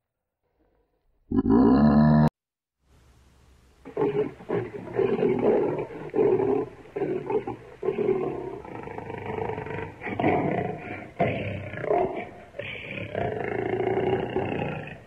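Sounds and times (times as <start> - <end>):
lion roaring: 3.9 - 15.0.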